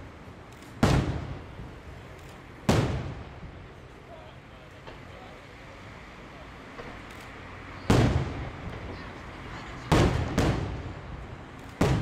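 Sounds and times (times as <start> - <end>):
firework shells bursting: 0.4 - 3.8, 9.8 - 12.0.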